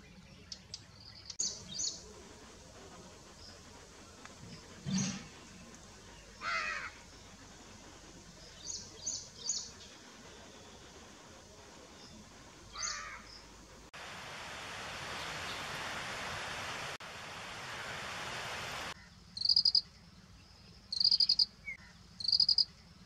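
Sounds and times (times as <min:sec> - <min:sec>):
insect chorus: 0:18.1 - 0:19.9, 0:20.9 - 0:21.6, 0:22.2 - 0:22.8.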